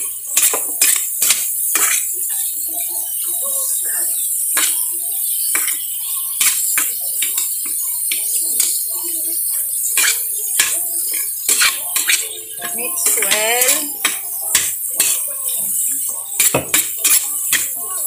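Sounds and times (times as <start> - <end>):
food frying hiss: 0.0 - 18.0
metal spatula scraping wok: 0.3 - 2.6, 3.7 - 15.3, 16.3 - 18.0.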